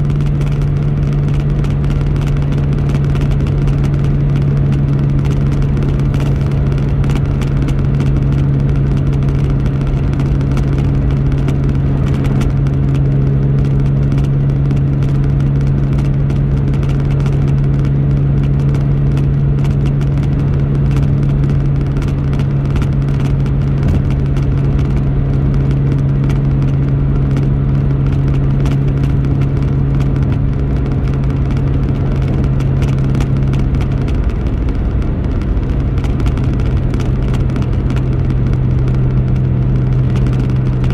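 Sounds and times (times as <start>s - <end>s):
car engine and road drone: 0.0s - 40.9s.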